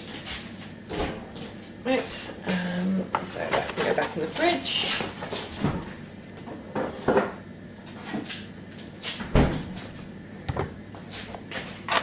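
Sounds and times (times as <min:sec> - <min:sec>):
refrigerator door shutting: 0:09.2 - 0:09.8.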